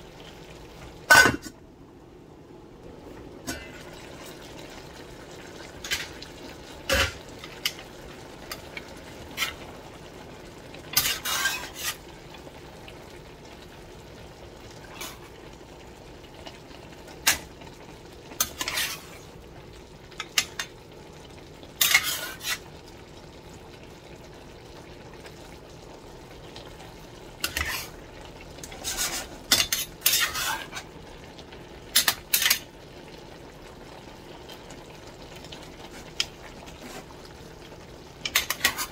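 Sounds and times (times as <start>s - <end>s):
vegetables sizzling: 2.9s - 38.9s
wooden spatula scraping a pot: 10.9s - 12.0s, 18.4s - 19.2s, 21.8s - 22.7s, 27.4s - 28.0s, 28.6s - 30.9s, 35.8s - 37.2s, 38.2s - 38.9s.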